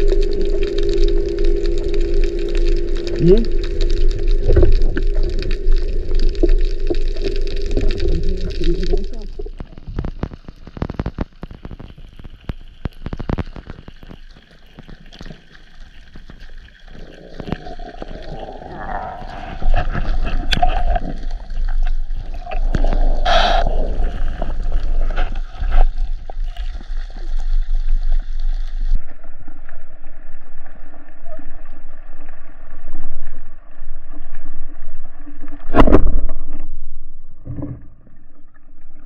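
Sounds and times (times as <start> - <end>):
hum with low rumble: 0.0 - 11.7, 16.8 - 39.0
water gurgling and clicking: 0.0 - 39.0.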